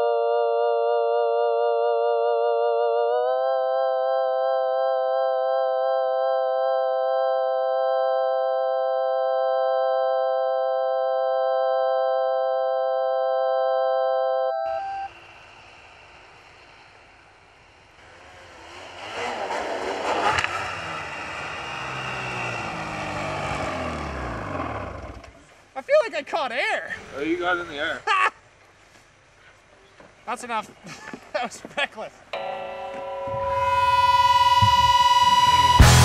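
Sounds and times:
synthesizer chord: 0.0 - 15.2, 32.4 - 36.0
snowmobile engine revving past: 18.0 - 25.4.

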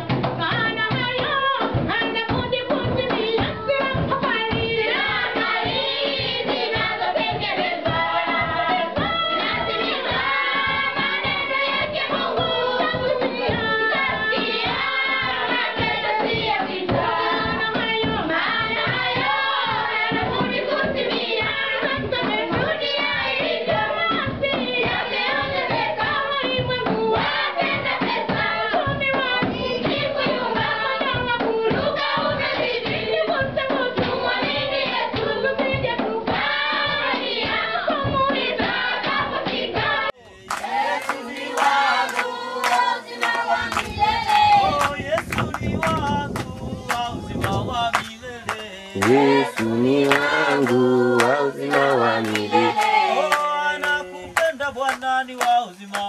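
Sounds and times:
choir singing: 4.5 - 45.0, 48.4 - 54.4
hand claps: 40.4 - 56.0.

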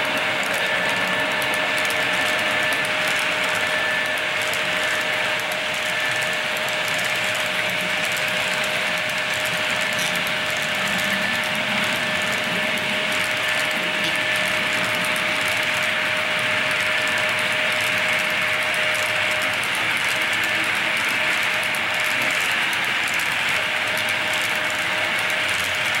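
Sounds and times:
model train wheels rattling on rail: 0.0 - 26.0.

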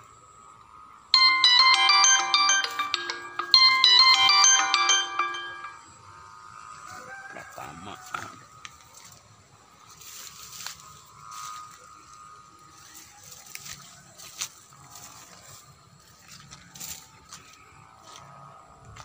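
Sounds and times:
footsteps crunching through dry leaves: 9.8 - 19.0.

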